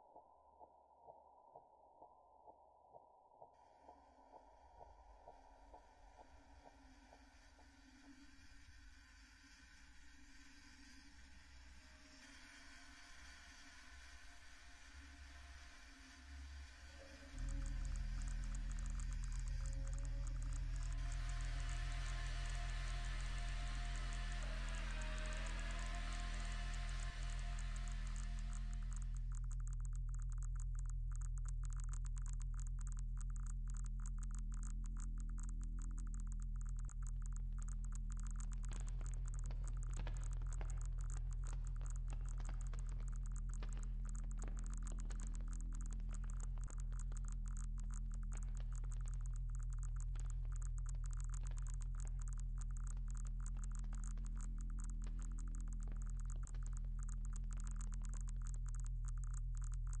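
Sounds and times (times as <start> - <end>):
electronic drone with crackling: 10.2 - 60.0.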